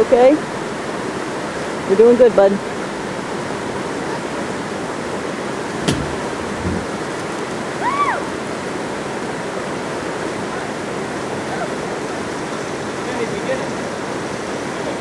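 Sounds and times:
river rapids rushing: 0.0 - 15.0.

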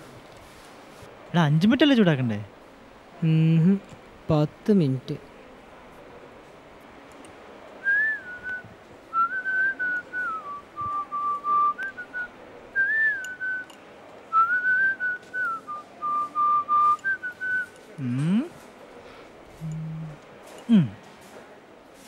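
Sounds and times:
person whistling a tune: 7.8 - 8.6, 9.2 - 13.7, 14.4 - 18.4.

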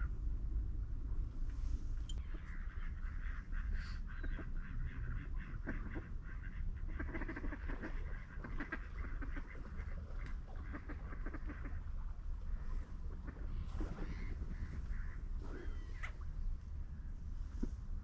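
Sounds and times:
steady low rumble: 0.0 - 18.0
waterfowl calling: 2.2 - 11.9, 12.5 - 17.2.

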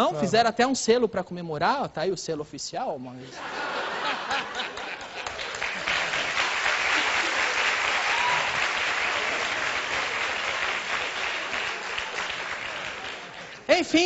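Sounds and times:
audience applauding: 4.1 - 14.0.

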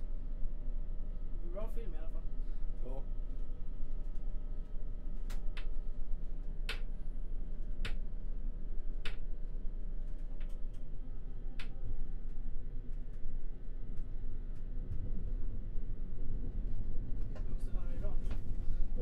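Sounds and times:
train rumbling: 11.1 - 19.0.

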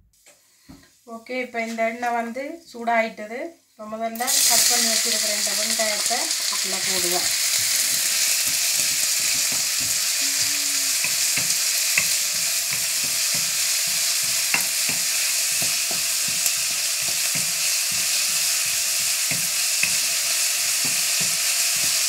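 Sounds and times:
onion sizzling in hot oil: 4.2 - 22.0
wooden spoon scraping a pan: 6.5 - 22.0.

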